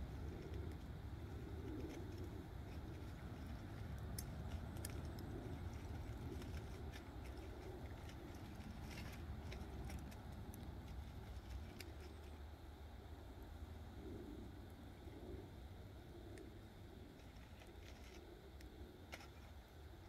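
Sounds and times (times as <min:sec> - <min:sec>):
wood fire popping and crackling: 0:00.0 - 0:12.3
steady low rumble: 0:00.0 - 0:20.0.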